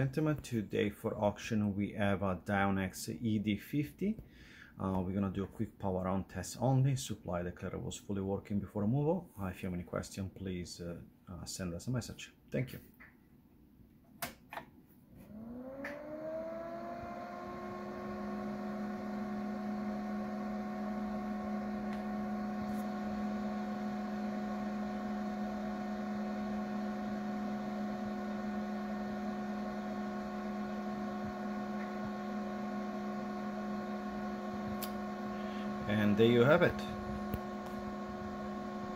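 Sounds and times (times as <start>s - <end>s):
internal fan humming: 15.3s - 38.9s
power switch clicking: 34.7s - 35.0s, 37.2s - 37.8s.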